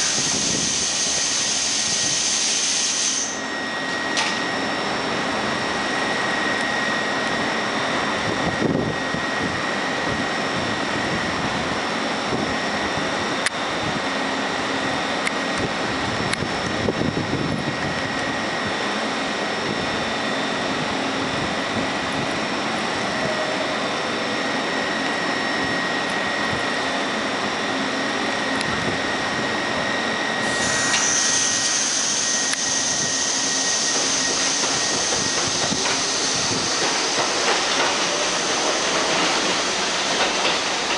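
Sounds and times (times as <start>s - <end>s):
air hiss: 0.0s - 3.4s, 30.4s - 40.8s
subway train equipment whine: 0.0s - 40.9s.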